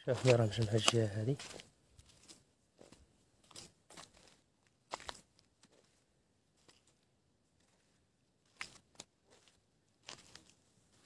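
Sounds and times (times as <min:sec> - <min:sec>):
footsteps crunching on sandy ground: 0:00.0 - 0:11.0.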